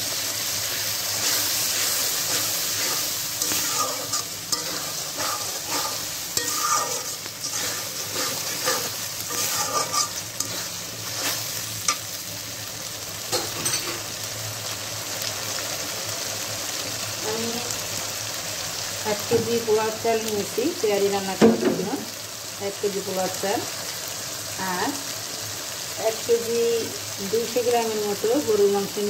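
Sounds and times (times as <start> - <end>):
food sizzling: 0.0 - 29.0
metal spatula scraping pan: 1.1 - 12.1.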